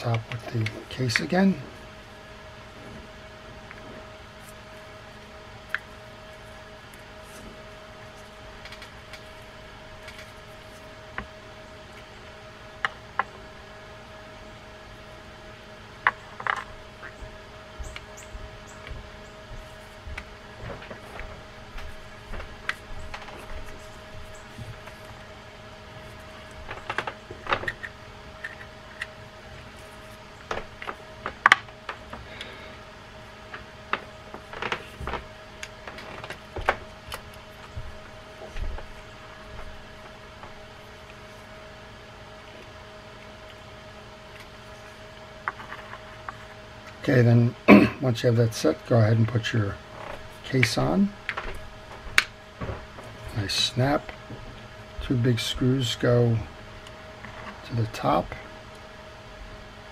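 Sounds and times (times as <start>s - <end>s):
steady faint hum: 0.0s - 59.9s.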